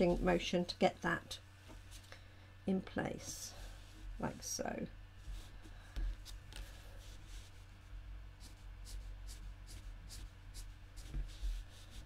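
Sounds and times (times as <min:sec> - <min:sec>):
marker scratching on card: 0:08.4 - 0:12.0.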